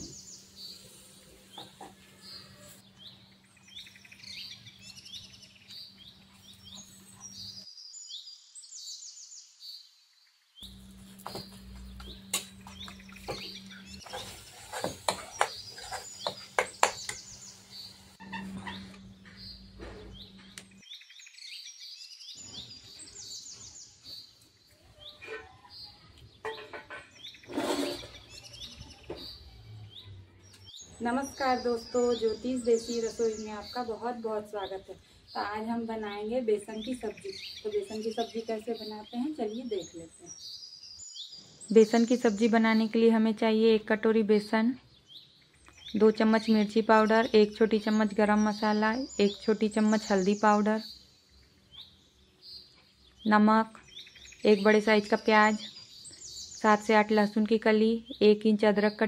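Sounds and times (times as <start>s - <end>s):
small birds chirping: 0.0s - 59.0s
ladle scraping metal pan: 14.0s - 16.4s, 26.5s - 28.4s.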